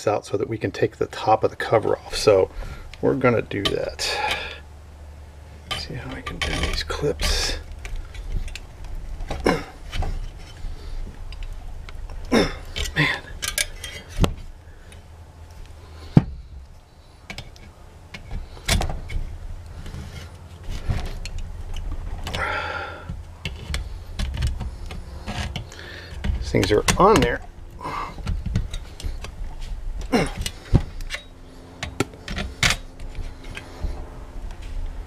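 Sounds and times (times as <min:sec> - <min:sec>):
low steady hum: 0:00.0 - 0:35.0
pliers clinking on sheet metal: 0:12.7 - 0:14.3.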